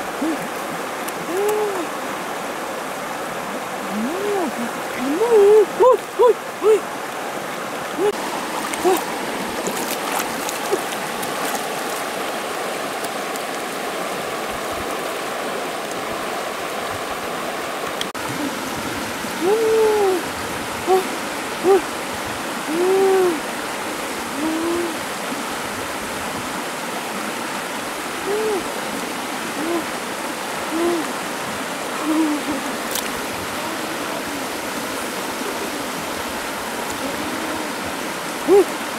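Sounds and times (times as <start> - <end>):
river rapids over stones: 0.0 - 38.9
woman exclaiming: 1.2 - 1.9, 3.9 - 6.9, 8.0 - 8.2, 8.8 - 9.0, 19.4 - 20.2, 22.7 - 23.4, 32.0 - 32.8.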